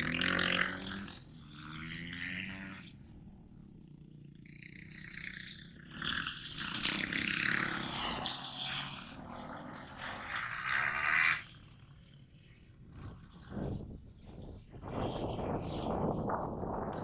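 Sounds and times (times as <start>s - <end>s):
dirt bike engine revving: 0.0s - 3.8s, 4.4s - 12.4s.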